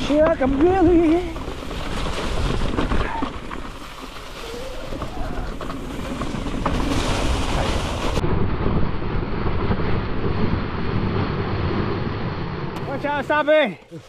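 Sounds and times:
bike parts rattling: 0.0 - 8.2
tyres rumbling on dirt trail: 0.0 - 14.0.

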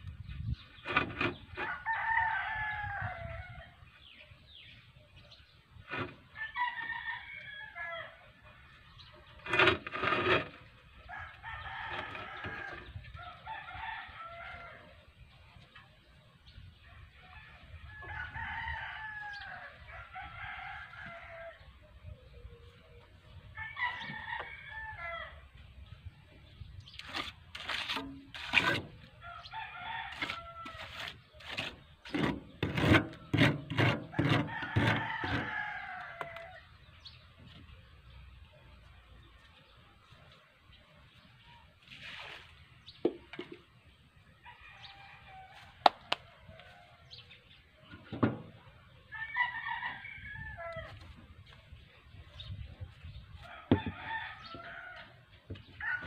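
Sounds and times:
rooster crowing: 1.6 - 3.6, 18.0 - 21.6, 34.2 - 36.6, 49.1 - 51.0.

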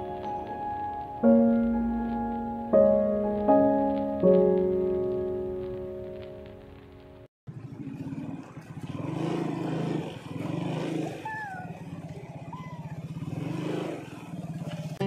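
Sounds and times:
motorcycle engine running slowly: 0.0 - 15.0.

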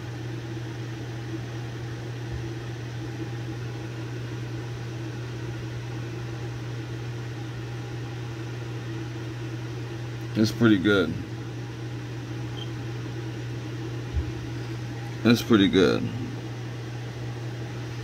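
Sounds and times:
low mechanical hum with hiss: 0.0 - 18.0.

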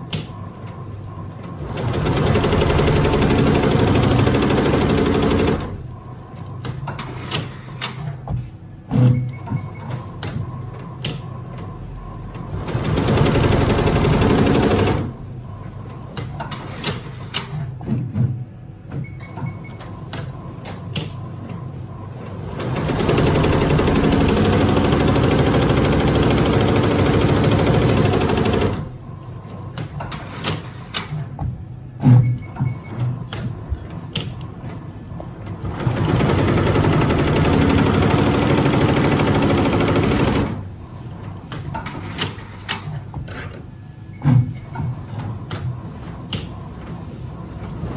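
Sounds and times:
embroidery machine stitching: 1.6 - 5.9, 22.4 - 28.9, 35.6 - 40.6.

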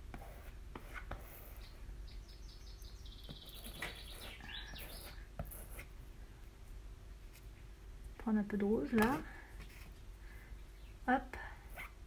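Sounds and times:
bird chirping and trilling: 1.4 - 5.2.

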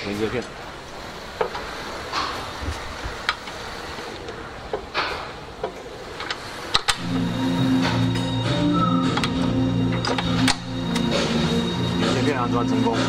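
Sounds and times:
background music: 7.0 - 13.0.

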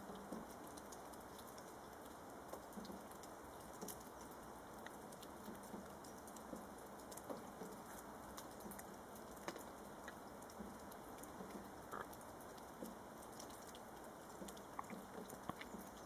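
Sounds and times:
squirrel gnawing nutshell: 14.4 - 16.0.

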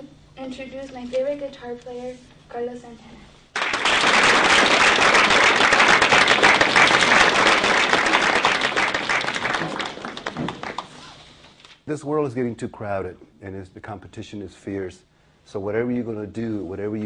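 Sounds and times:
students applauding: 3.5 - 11.2.

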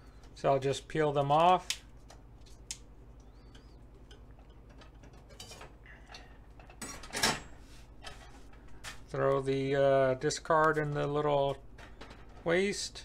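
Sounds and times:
artichoke leaves snapping: 1.4 - 1.9.

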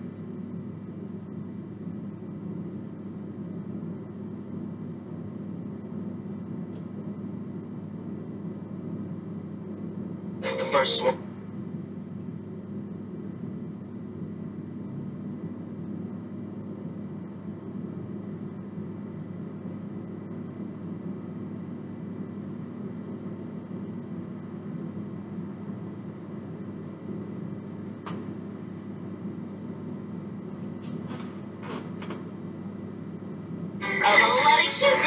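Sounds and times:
television hum and hiss: 5.3 - 15.0, 29.8 - 35.0.

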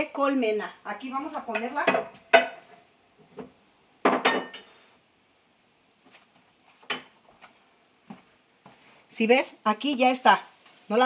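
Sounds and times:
dishes and utensils clinking: 4.1 - 4.7.

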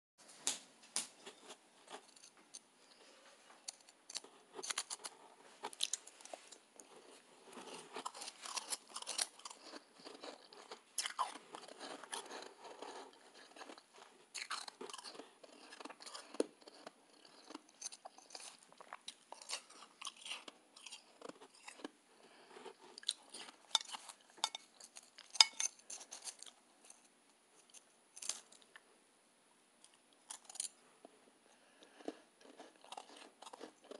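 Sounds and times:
shaved ice being chewed: 3.7 - 26.6, 31.8 - 33.9.

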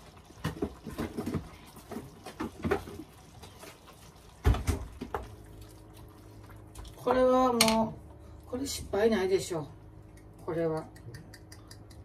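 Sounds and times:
faint steady hum: 2.7 - 12.0.

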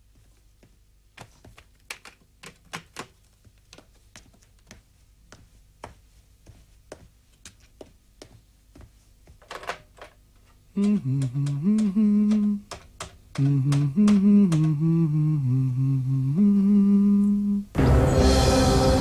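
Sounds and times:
sharp taps and clicks: 1.2 - 4.8, 10.8 - 14.8.

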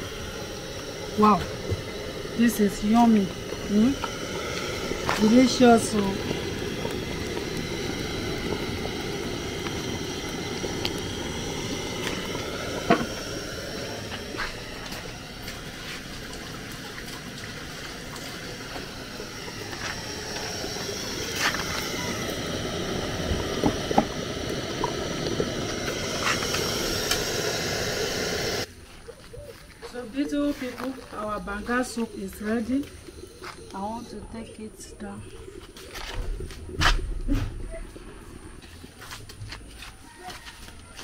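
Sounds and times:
soup boiling and bubbling: 0.0 - 41.0
sharp pops: 18.1 - 28.7.

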